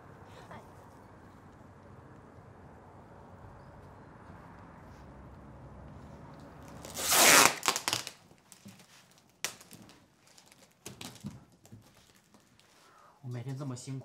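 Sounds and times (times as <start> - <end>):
loud rustling swish: 6.8 - 8.1.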